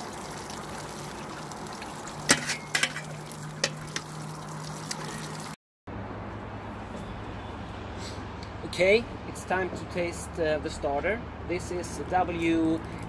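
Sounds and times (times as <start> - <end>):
water pouring onto grain: 0.0 - 5.6.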